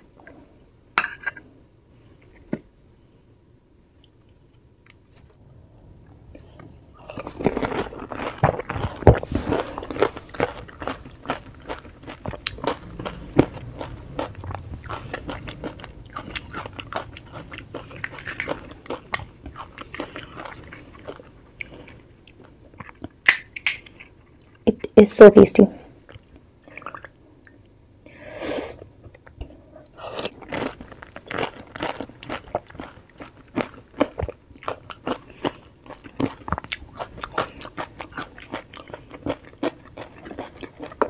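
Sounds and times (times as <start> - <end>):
crisp shell crunching: 7.0 - 22.0.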